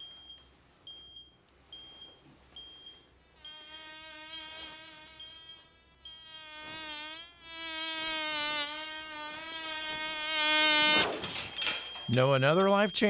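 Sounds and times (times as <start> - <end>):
heart monitor beeping: 0.0 - 6.4, 10.9 - 13.0
fly buzzing: 3.4 - 11.3.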